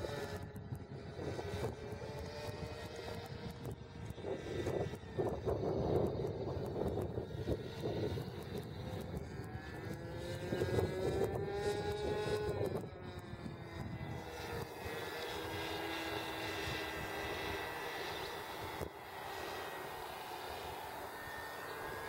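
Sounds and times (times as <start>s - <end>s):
model airplane motor buzzing: 0.0s - 22.0s.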